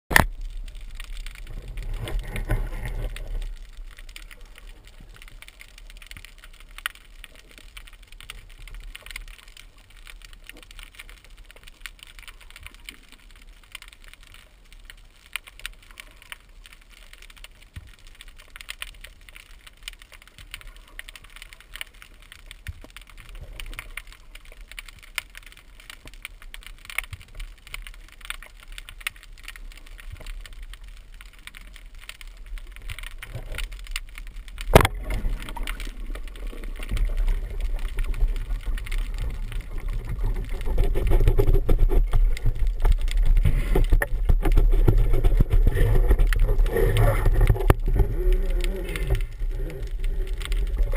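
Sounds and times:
low underwater rushing noise: 0.1s - 11.5s, 29.4s - 50.9s
underwater clicks crackling: 0.1s - 50.9s.

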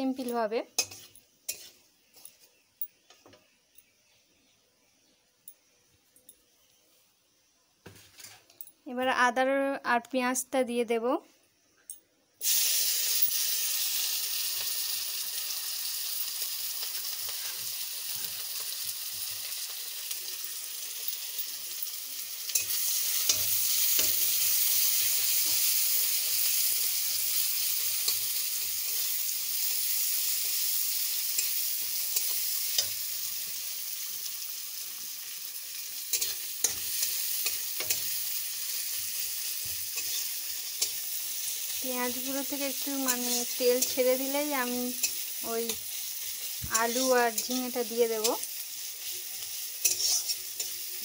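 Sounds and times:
onion sizzling in hot oil: 0.0s - 2.6s, 12.4s - 51.0s
metal spatula scraping pan: 0.8s - 1.8s, 40.0s - 41.6s, 49.8s - 50.8s.

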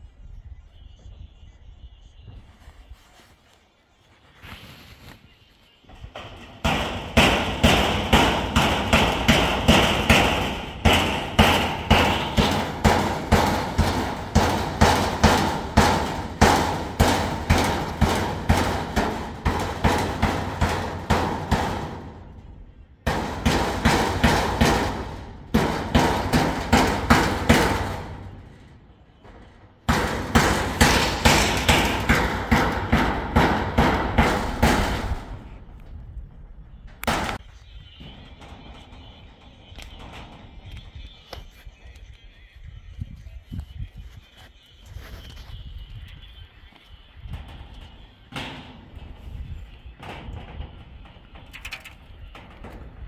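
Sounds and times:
hammer blows: 5.9s - 42.1s, 44.4s - 53.0s.

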